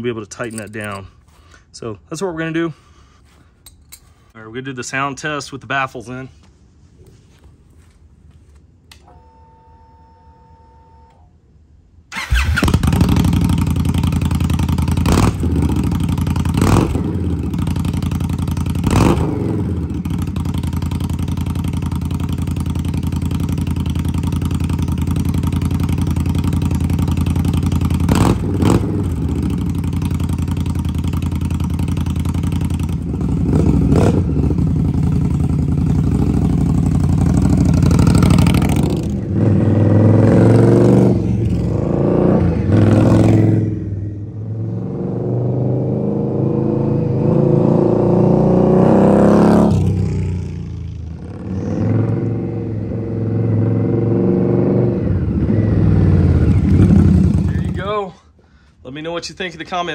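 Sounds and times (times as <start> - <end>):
motorcycle engine starting: 0.3 - 1.2, 12.0 - 58.0
motorcycle engine idling loud: 19.6 - 39.1, 56.4 - 57.9.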